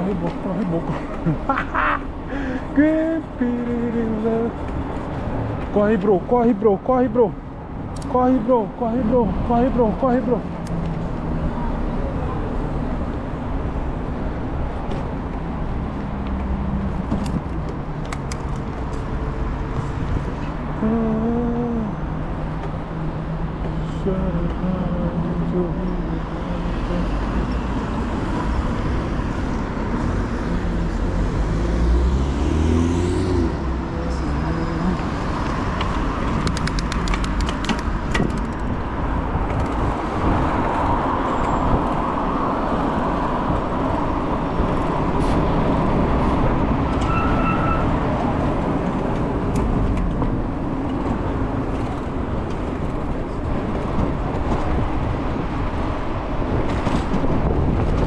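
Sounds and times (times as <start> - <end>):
road traffic: 0.0 - 58.0
wind rumbling on microphone: 32.8 - 58.0.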